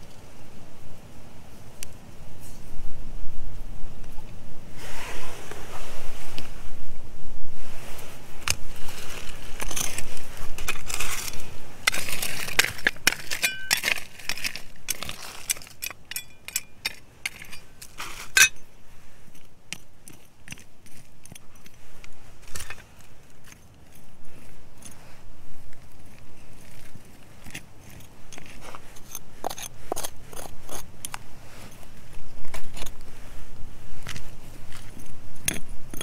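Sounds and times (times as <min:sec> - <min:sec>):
stones and grit scraping: 0:07.7 - 0:36.0
metal digging tool clinking: 0:09.6 - 0:21.8.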